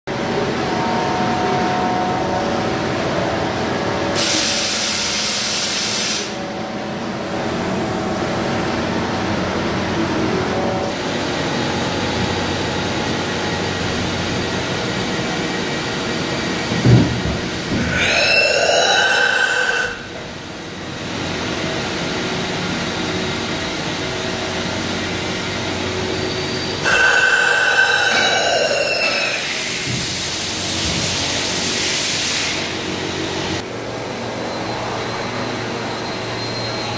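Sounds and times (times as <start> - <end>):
machining centre humming: 0.1 - 36.9
burst of hiss: 4.2 - 6.4.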